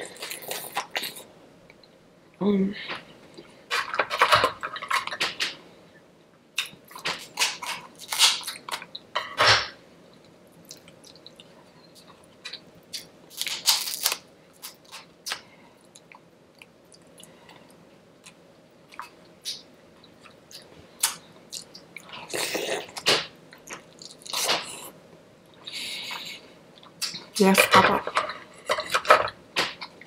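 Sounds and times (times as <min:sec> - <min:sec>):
wet chewing with crunchy bites: 0:10.2 - 0:27.2.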